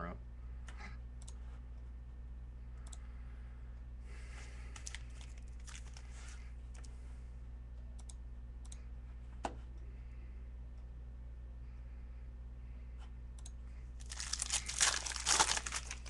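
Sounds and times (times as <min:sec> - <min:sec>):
low electrical hum: 0:00.0 - 0:16.0
foil packs crinkling: 0:04.7 - 0:06.1, 0:14.0 - 0:16.0.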